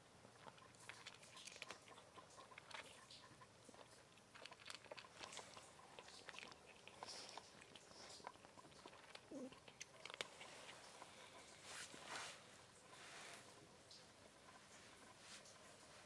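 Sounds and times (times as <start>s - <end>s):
cat crunching dry kibble: 0.4s - 11.4s.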